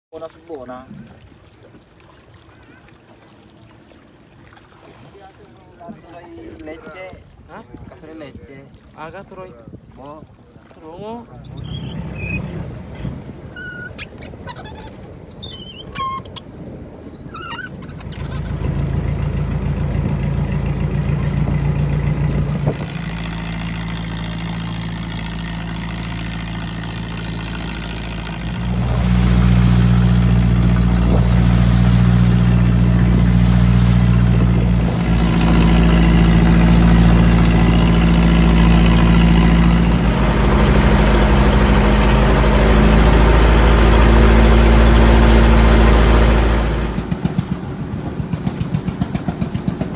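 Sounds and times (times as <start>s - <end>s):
boat engine droning: 0.2s - 49.9s
rope squeaking on winch drum: 11.3s - 12.7s, 13.4s - 18.9s.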